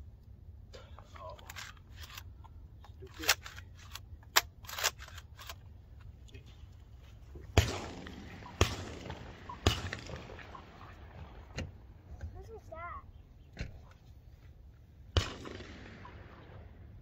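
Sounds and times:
shotgun action clicking: 0:03.1 - 0:05.6
shotgun shots with echo: 0:07.5 - 0:11.8, 0:15.1 - 0:17.0.

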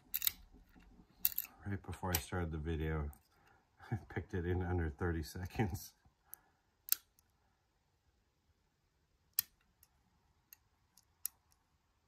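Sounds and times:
lock pick clicking in lock: 0:00.0 - 0:00.4.

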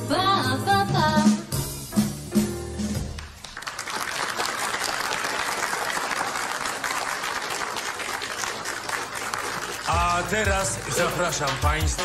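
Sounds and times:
crowd applauding: 0:03.1 - 0:12.0.

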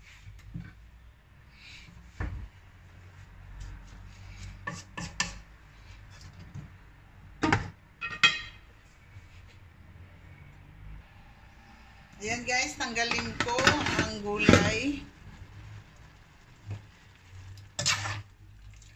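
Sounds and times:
wooden spatula stirring in a wok: 0:02.8 - 0:06.6, 0:11.6 - 0:18.6.

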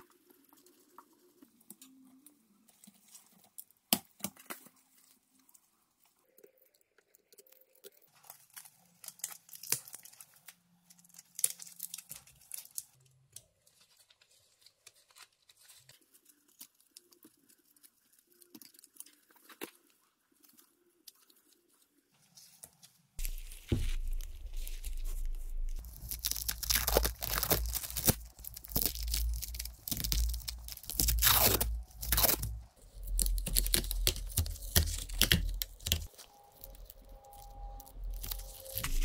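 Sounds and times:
tape crackling: 0:22.4 - 0:39.0
tape ripping off roll: 0:23.2 - 0:39.0.

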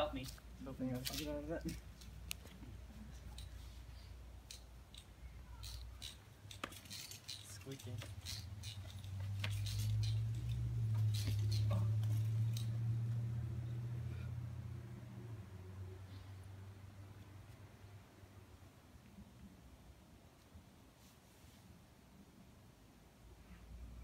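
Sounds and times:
slackline clicks and rustles: 0:00.0 - 0:13.3
low steady rumble: 0:07.8 - 0:20.2.

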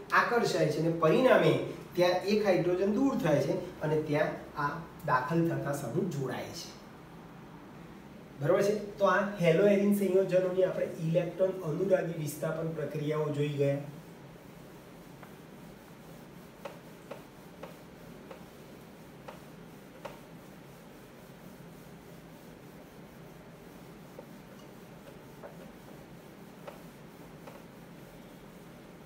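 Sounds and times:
steady low hiss: 0:00.0 - 0:29.0
faint clicks and taps: 0:16.6 - 0:18.6, 0:19.2 - 0:20.3, 0:24.2 - 0:27.8.

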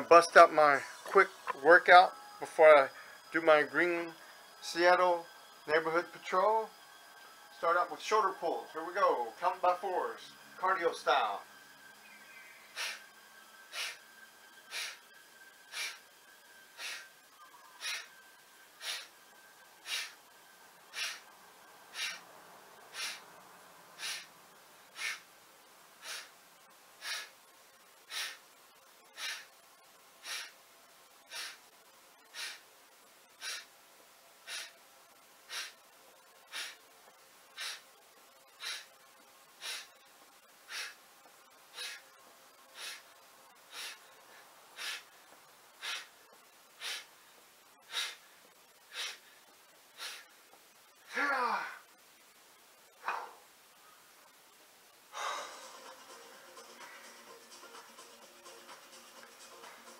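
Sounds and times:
man breathing out sharply: 0:14.7 - 0:15.0, 0:16.7 - 0:17.1, 0:20.9 - 0:21.3, 0:21.9 - 0:22.2, 0:22.9 - 0:23.2, 0:24.0 - 0:24.3, 0:24.9 - 0:25.3, 0:27.0 - 0:27.3, 0:28.1 - 0:28.4, 0:29.2 - 0:29.5, 0:31.3 - 0:31.6, 0:33.4 - 0:33.7, 0:34.5 - 0:34.7, 0:35.5 - 0:35.8, 0:37.6 - 0:37.9, 0:42.8 - 0:43.0, 0:55.1 - 0:55.7.

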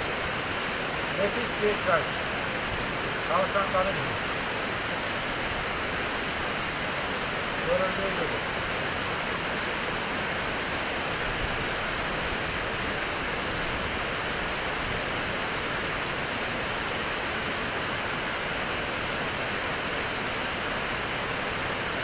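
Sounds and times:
rushing stream water: 0:00.0 - 0:22.0.

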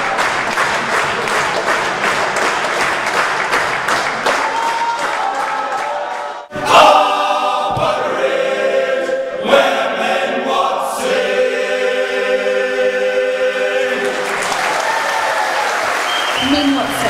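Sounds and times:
male choir singing: 0:06.5 - 0:14.6.

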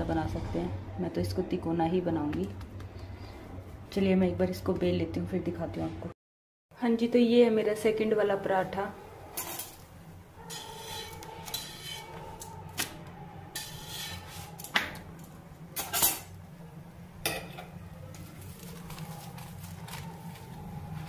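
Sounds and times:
metal utensils clinking on griddle: 0:09.3 - 0:09.9, 0:10.5 - 0:12.5, 0:13.6 - 0:16.4.

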